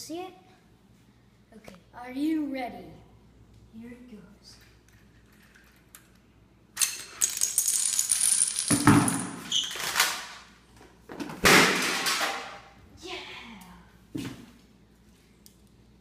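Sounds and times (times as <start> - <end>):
dominoes clattering: 6.8 - 10.4.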